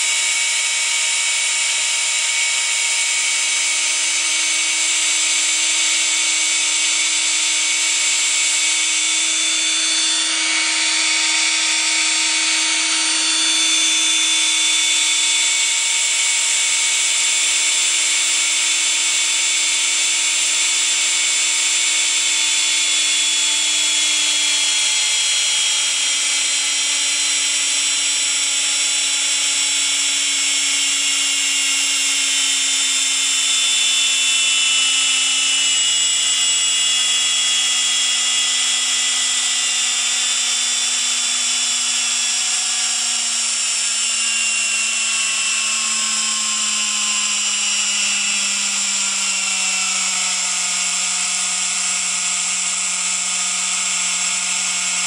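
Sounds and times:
electric fan high-pitched whine: 0.0s - 55.0s.

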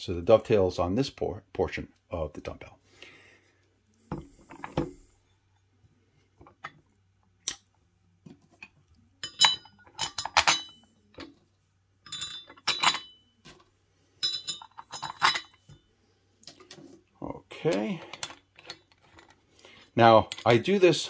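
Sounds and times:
metal bolts clinking: 9.2s - 11.4s, 12.0s - 13.3s, 14.2s - 15.8s.

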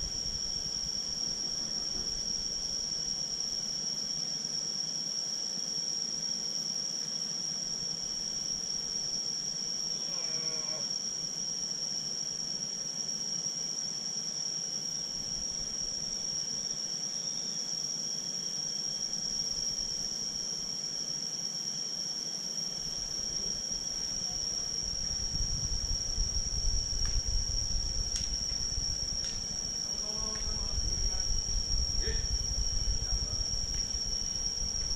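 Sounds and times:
insects droning: 0.0s - 34.9s
low rumble: 24.5s - 34.9s.

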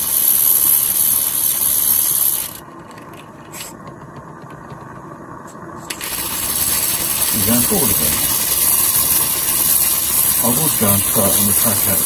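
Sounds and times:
fast ticking of model locomotive: 0.0s - 2.6s, 5.9s - 12.0s
gas burner hissing: 0.0s - 2.6s, 5.2s - 12.0s.

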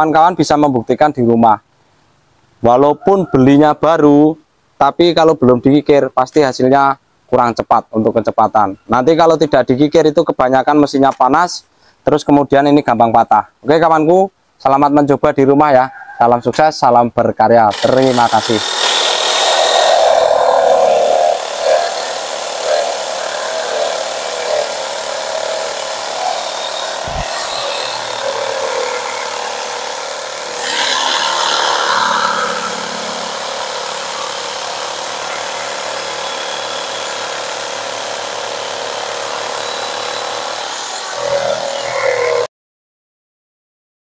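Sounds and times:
electric jigsaw sawing wood: 17.7s - 42.5s.

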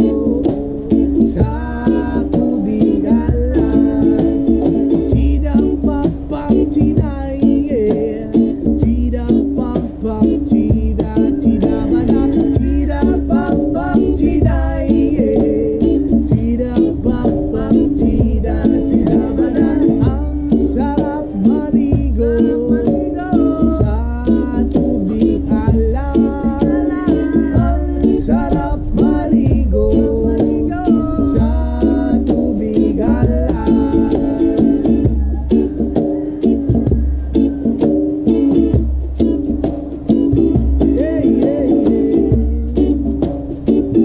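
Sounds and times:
man singing: 0.0s - 35.6s, 40.6s - 43.0s
hand drums beat: 0.0s - 44.0s
shaker: 0.0s - 44.0s
ukulele strumming: 0.0s - 44.0s.

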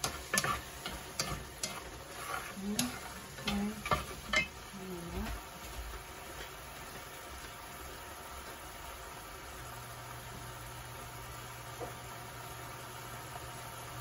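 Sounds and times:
wooden utensils clicking on pan: 0.0s - 5.4s
faint sizzle: 0.0s - 14.0s.

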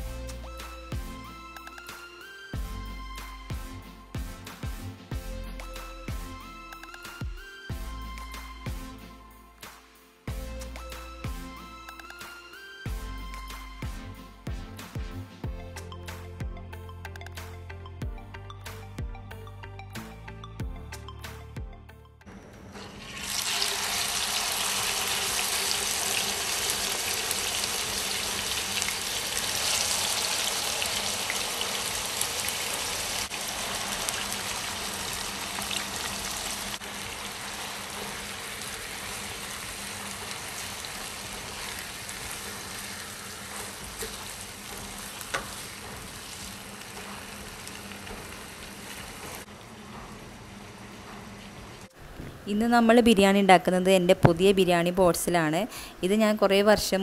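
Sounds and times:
squid sizzling in hot oil: 23.0s - 49.5s.

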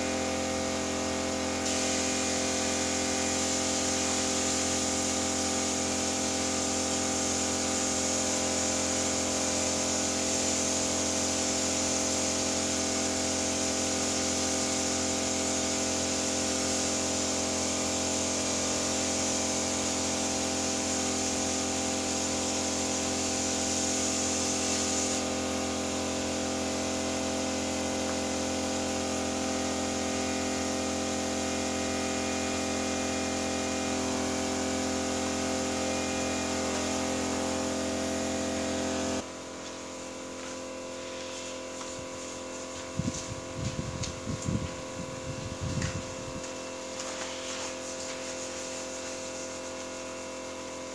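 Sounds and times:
spray gun hissing: 0.0s - 39.3s, 46.4s - 50.9s.

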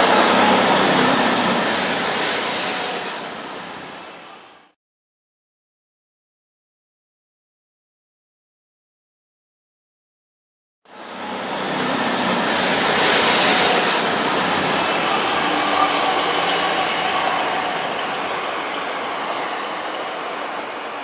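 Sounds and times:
diesel train passing: 0.0s - 4.8s, 10.9s - 21.0s
train wheels on rails: 0.0s - 4.8s, 10.9s - 21.0s.

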